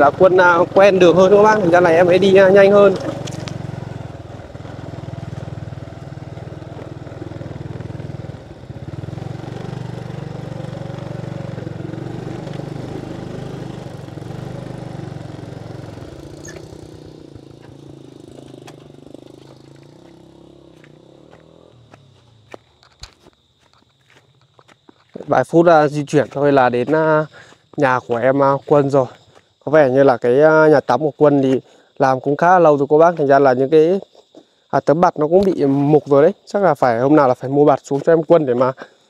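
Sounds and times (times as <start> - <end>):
small motorbike engine running: 0.0 - 23.2.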